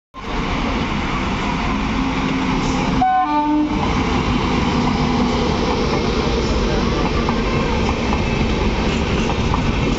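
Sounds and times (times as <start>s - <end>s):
train wheels rumbling on rail: 0.2s - 9.9s
locomotive horn blast: 3.0s - 3.8s.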